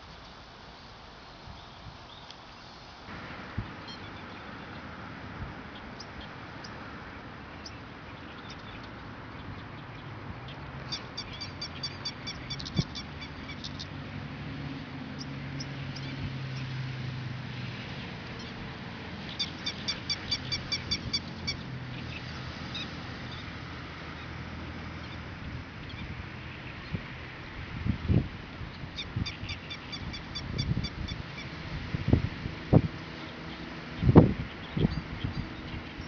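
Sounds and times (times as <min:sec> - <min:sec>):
small animal chirping: 0:10.9 - 0:13.8.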